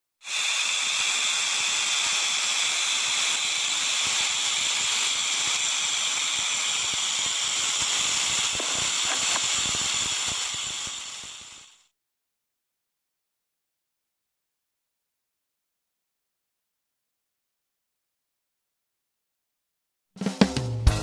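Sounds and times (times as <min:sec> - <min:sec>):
rattlesnake rattle buzzing: 0:00.2 - 0:11.9.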